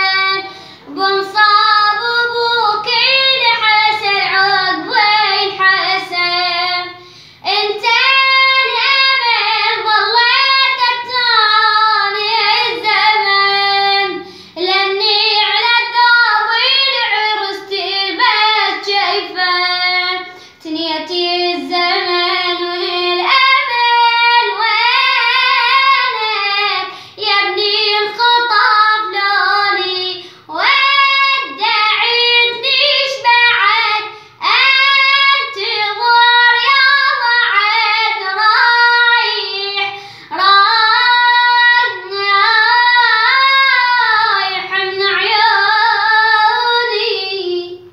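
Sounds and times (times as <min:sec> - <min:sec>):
boy singing unaccompanied: 0:00.0 - 0:47.9
short breaths: 0:00.5 - 0:00.9, 0:07.0 - 0:07.4, 0:14.2 - 0:14.6, 0:20.3 - 0:20.6, 0:26.9 - 0:27.2, 0:30.2 - 0:30.5, 0:39.9 - 0:40.3.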